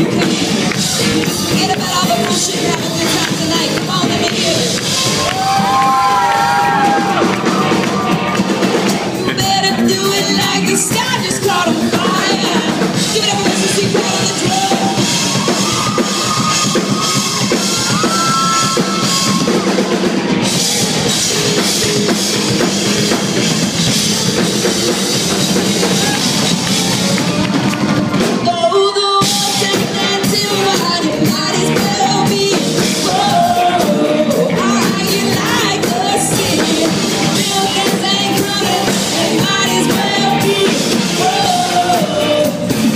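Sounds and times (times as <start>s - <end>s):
live rock band playing: 0.0s - 42.9s
woman singing: 1.2s - 4.8s, 9.3s - 15.0s, 28.4s - 42.9s.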